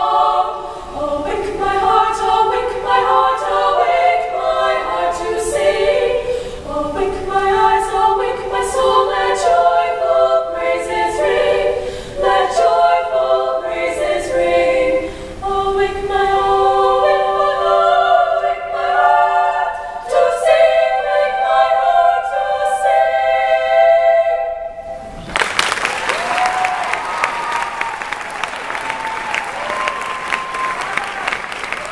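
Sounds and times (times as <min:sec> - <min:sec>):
women's choir singing: 0:00.0 - 0:25.1
audience applause: 0:25.2 - 0:31.9.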